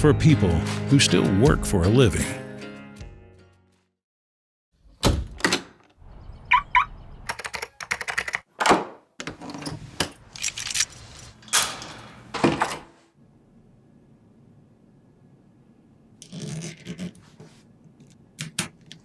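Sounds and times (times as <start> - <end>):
keys tapping on keyboard: 7.3 - 8.5.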